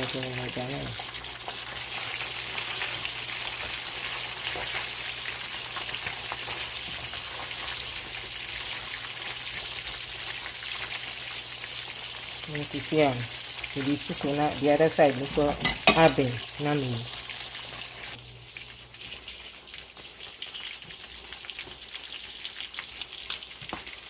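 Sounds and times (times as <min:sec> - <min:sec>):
person's voice: 0:00.0 - 0:01.0, 0:12.5 - 0:17.1
meat sizzling in hot oil: 0:00.0 - 0:24.0
spatula turning food: 0:00.6 - 0:11.2.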